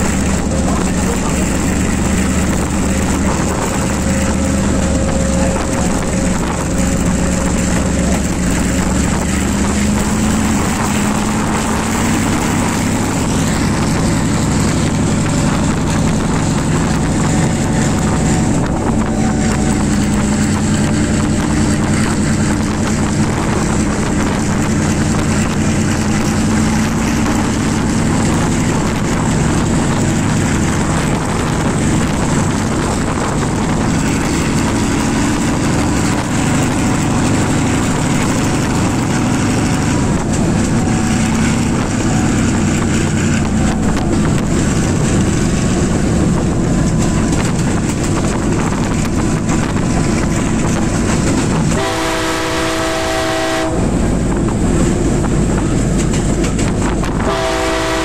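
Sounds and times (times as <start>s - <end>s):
coaches rumbling over rails: 0.0s - 58.0s
diesel locomotive running: 0.0s - 58.0s
locomotive horn chord: 51.6s - 54.0s, 57.2s - 58.0s.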